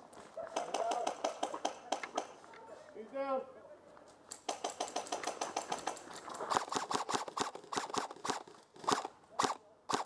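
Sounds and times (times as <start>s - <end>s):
airsoft guns popping: 0.5s - 2.4s, 4.3s - 10.0s.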